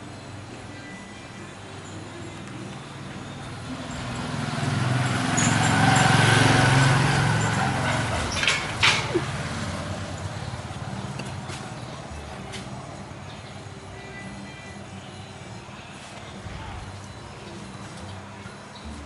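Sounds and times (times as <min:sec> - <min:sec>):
vehicle driving past: 0:03.4 - 0:12.8.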